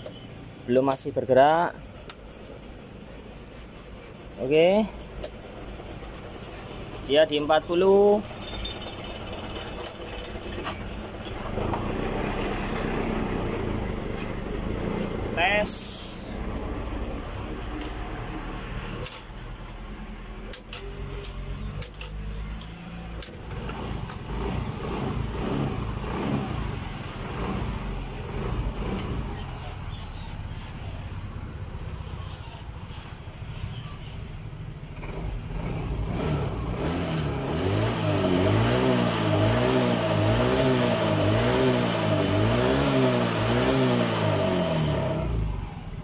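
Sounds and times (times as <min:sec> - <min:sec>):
scooter engine running: 0:08.3 - 0:15.4.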